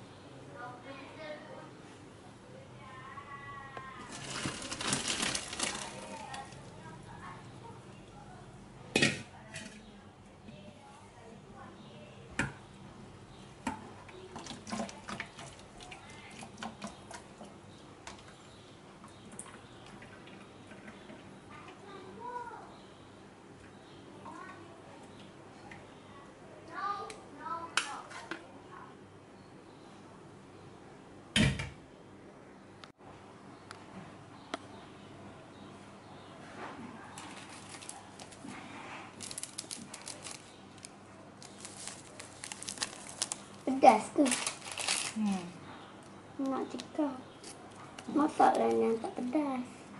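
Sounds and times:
plastic sachet crinkling: 0:04.0 - 0:06.7, 0:37.2 - 0:45.5.

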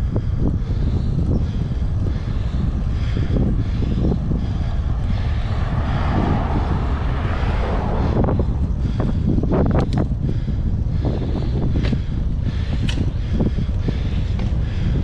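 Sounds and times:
wind buffeting microphone: 0:00.0 - 0:15.0
broad rushing sound: 0:02.0 - 0:09.8.

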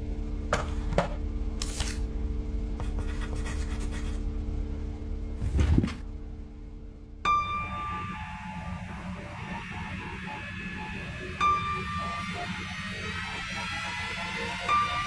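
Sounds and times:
low hum: 0:00.0 - 0:15.0
pen scratching on paper: 0:02.8 - 0:04.2.

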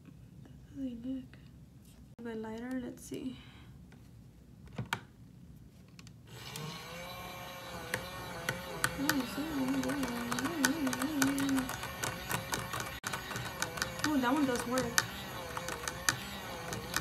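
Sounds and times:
small washing machine whirring: 0:06.3 - 0:17.0
rapid irregular clicking: 0:07.6 - 0:17.0.

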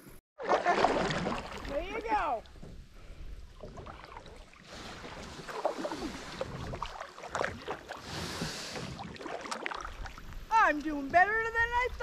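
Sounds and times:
kayak paddle splashing: 0:00.4 - 0:11.8
water hiss: 0:07.9 - 0:09.1.

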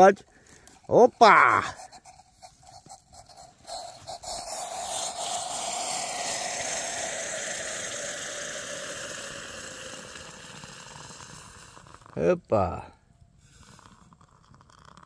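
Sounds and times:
coffee pouring splashing hiss: 0:02.6 - 0:12.2, 0:13.5 - 0:15.0.

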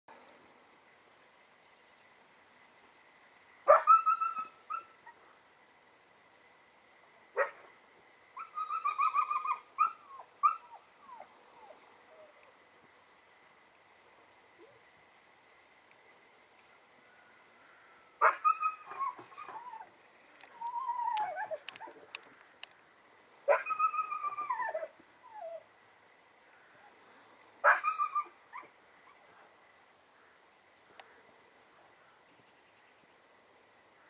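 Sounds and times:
dog whining and yipping: 0:03.7 - 0:05.2, 0:08.4 - 0:12.5, 0:18.2 - 0:19.9, 0:20.5 - 0:22.1, 0:23.5 - 0:25.7, 0:27.6 - 0:29.3.

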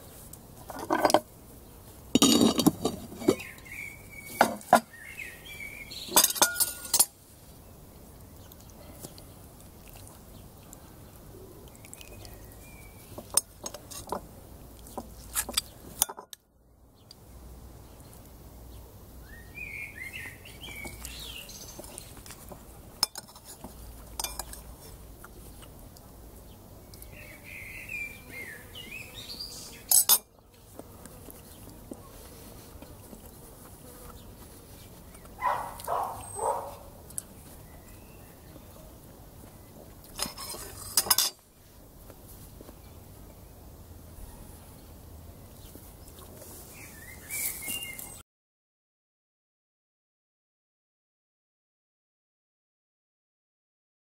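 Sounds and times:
metal clanking on cast iron: 0:00.7 - 0:01.2, 0:02.2 - 0:03.4, 0:04.4 - 0:04.9, 0:06.1 - 0:07.1, 0:23.0 - 0:23.6, 0:24.2 - 0:24.6, 0:29.9 - 0:30.3, 0:40.2 - 0:41.4
spoon and fork clinking in bowl: 0:02.2 - 0:02.9, 0:06.1 - 0:07.1, 0:23.0 - 0:23.6, 0:24.2 - 0:24.7, 0:29.9 - 0:30.3, 0:40.2 - 0:41.4
birds chirping: 0:03.1 - 0:07.0, 0:10.3 - 0:13.3, 0:17.8 - 0:22.2, 0:26.4 - 0:30.5, 0:34.1 - 0:39.9, 0:44.2 - 0:48.2.

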